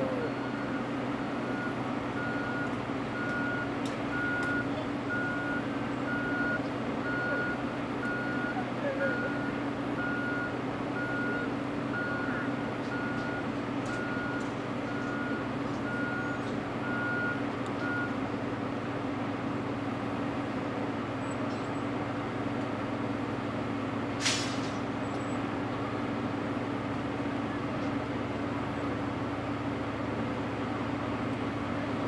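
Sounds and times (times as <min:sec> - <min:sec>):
heavy diesel machinery running: 0:00.0 - 0:32.0
backup alarm beeping: 0:01.5 - 0:18.2
sharp hiss: 0:24.2 - 0:24.8.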